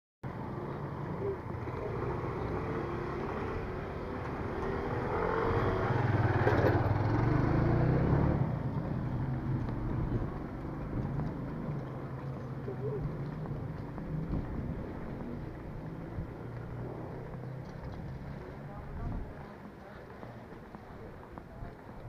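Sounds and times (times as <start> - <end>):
street traffic: 0.2 - 22.0
motorcycle passing: 0.3 - 22.0.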